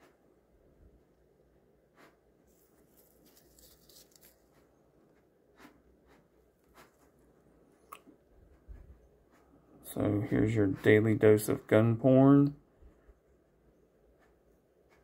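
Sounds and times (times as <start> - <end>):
gloved hand rustling: 2.0 - 5.0.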